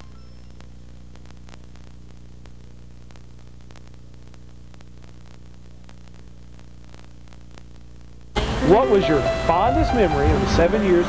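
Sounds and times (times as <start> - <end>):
faint clicks and crackle: 0.0 - 8.4
electrical hum and hiss: 0.0 - 11.0.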